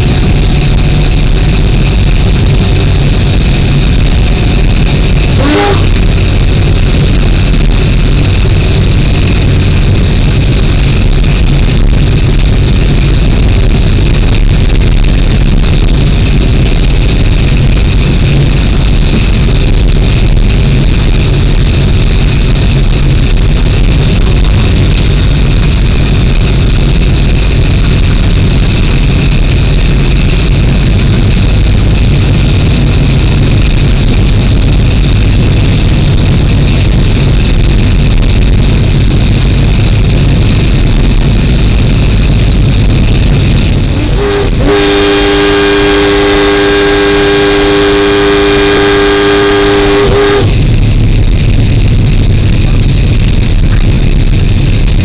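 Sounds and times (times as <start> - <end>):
constant high whine: 0.0 - 55.0
train running noise: 0.0 - 55.0
train horn chord: 5.2 - 6.4, 43.9 - 50.6.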